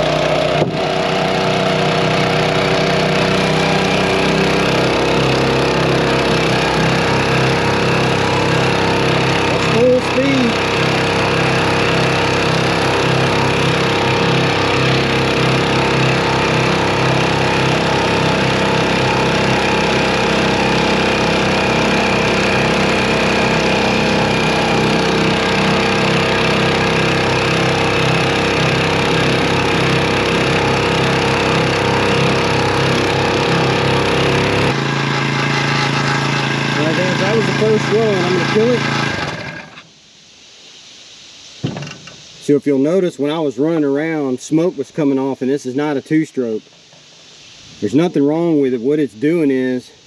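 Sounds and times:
outboard motor running: 0.0 - 39.9.

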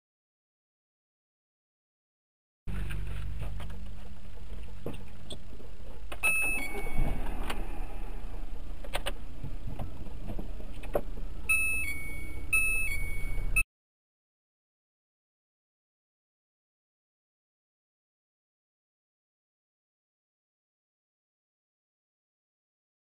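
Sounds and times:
two-note electronic tone: 6.2 - 7.8, 11.5 - 13.6.

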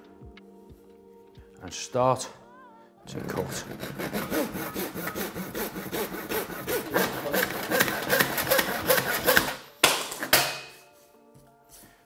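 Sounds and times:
hand saw cutting plank: 3.2 - 9.6.

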